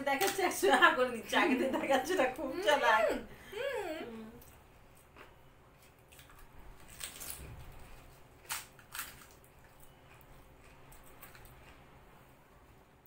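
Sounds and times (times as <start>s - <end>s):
crisp shells cracking and crunching: 6.1s - 10.2s.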